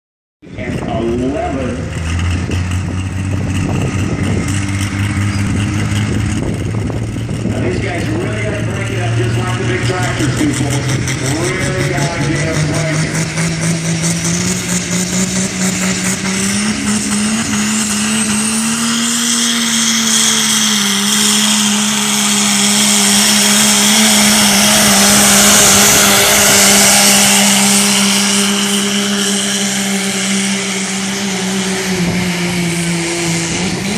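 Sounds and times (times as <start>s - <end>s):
diesel engine at high revs: 0.4s - 33.9s.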